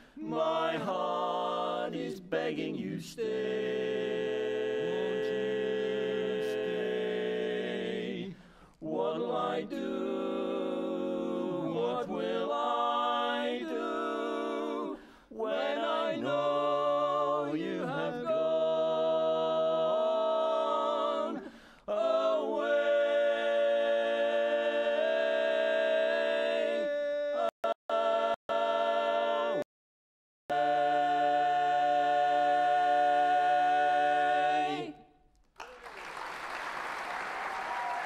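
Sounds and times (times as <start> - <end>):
singers breathing: 0.0 - 0.2, 8.3 - 8.8, 15.0 - 15.3, 21.4 - 21.9
male quartet singing a cappella: 0.0 - 29.6, 30.5 - 35.1.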